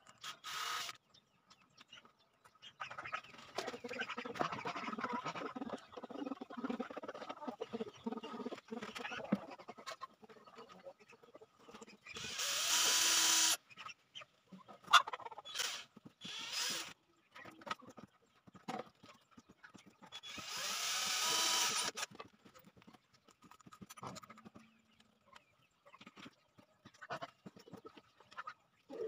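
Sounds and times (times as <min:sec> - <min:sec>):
cordless drill running: 0:00.2 - 0:01.0, 0:12.2 - 0:13.6, 0:15.6 - 0:16.9, 0:20.2 - 0:22.1.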